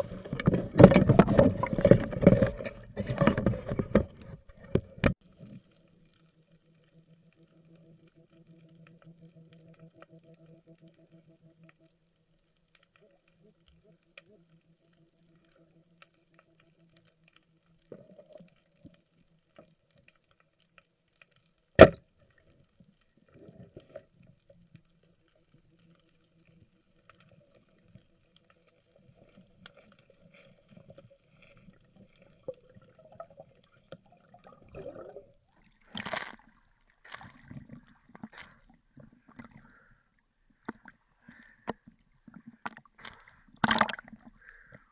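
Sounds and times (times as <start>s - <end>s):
water splashing and bubbling: 0.0s - 5.8s, 28.8s - 44.7s
speargun firing crack underwater: 21.8s - 22.0s, 43.6s - 44.1s.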